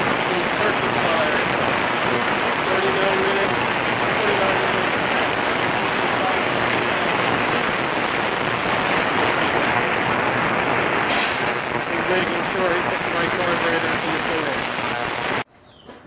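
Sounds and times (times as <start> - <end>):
ultrasonic cleaner hissing: 0.0 - 15.4
short sharp noise: 10.9 - 12.4.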